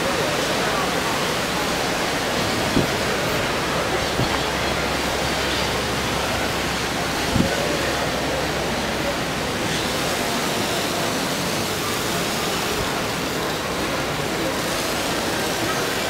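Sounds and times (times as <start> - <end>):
rushing outdoor ambient noise: 0.0 - 16.0.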